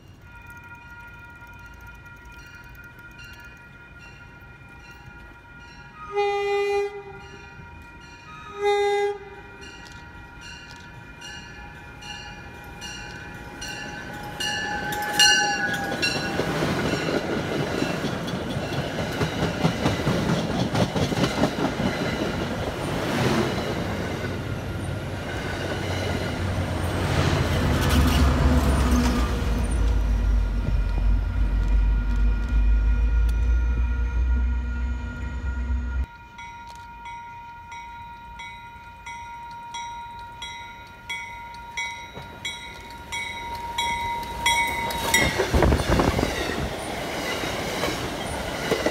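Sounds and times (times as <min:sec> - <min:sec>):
crossing bell ringing: 0:00.0 - 0:20.3, 0:23.2 - 0:46.7
train horn blasts: 0:00.3 - 0:10.5, 0:11.6 - 0:16.7, 0:27.6 - 0:37.8
train wheels on rails: 0:09.1 - 0:48.9
deep engine rumble: 0:29.4 - 0:36.1.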